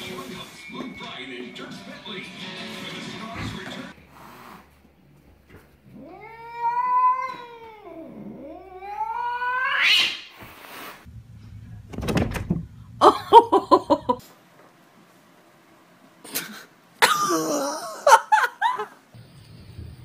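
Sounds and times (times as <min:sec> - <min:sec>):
cat meowing: 0:05.9 - 0:10.0.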